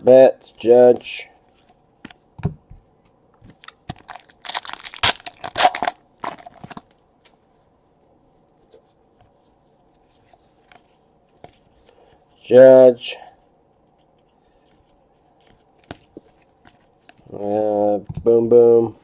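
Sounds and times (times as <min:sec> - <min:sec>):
foil wrapper tearing and crinkling: 0:03.6 - 0:06.9
cards being handled: 0:08.6 - 0:12.6, 0:13.8 - 0:19.0.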